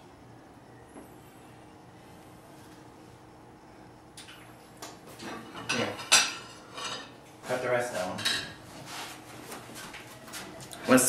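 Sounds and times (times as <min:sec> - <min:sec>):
plates and cutlery clinking: 0:05.2 - 0:07.2, 0:08.0 - 0:08.6.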